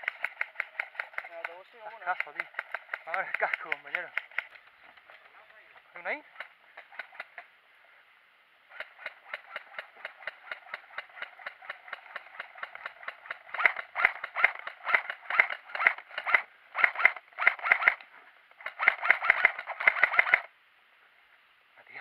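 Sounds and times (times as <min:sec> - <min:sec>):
rattling footsteps and gear: 0:00.0 - 0:07.5, 0:08.7 - 0:20.5.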